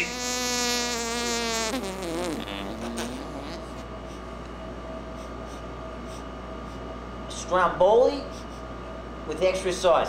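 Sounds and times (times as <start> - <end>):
man drawing out a word: 0.0 - 3.8
steady hum: 0.0 - 10.0.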